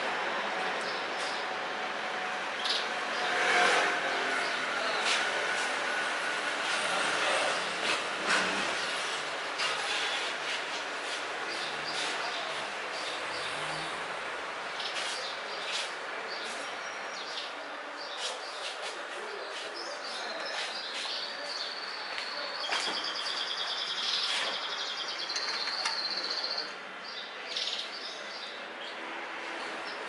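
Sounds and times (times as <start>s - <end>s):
small birds chirping: 11.0s - 14.1s, 14.7s - 29.0s.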